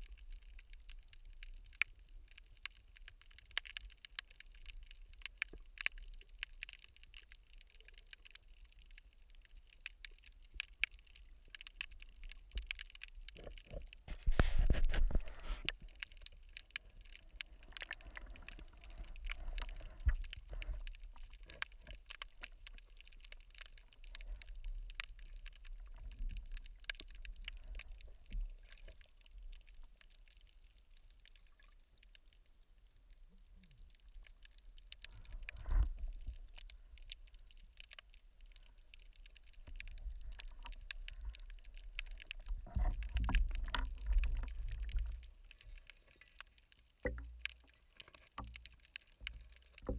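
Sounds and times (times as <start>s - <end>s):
low water rumble: 0.0s - 49.9s
underwater clicking crackle: 0.0s - 49.9s
gurgling water swells: 10.8s - 49.9s.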